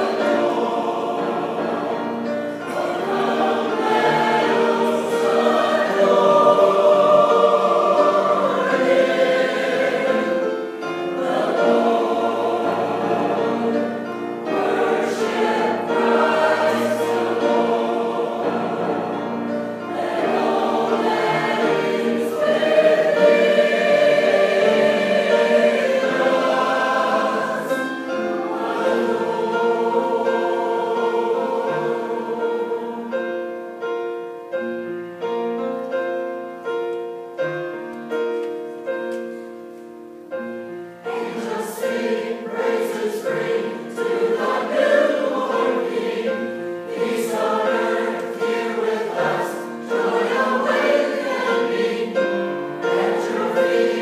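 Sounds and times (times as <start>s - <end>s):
choir singing: 0.0s - 35.3s, 40.4s - 54.0s
piano accompaniment: 0.0s - 54.0s.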